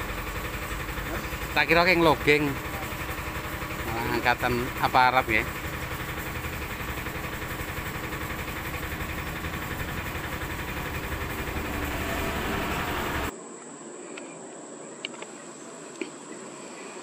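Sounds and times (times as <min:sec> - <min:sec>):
diesel lorry engine rumbling: 0:00.0 - 0:13.3.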